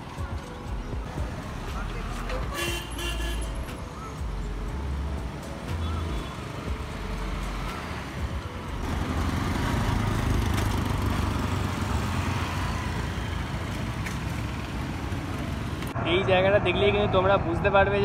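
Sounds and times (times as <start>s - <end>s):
road traffic: 0.0s - 18.0s
scooters and motorcycles passing: 5.3s - 16.2s.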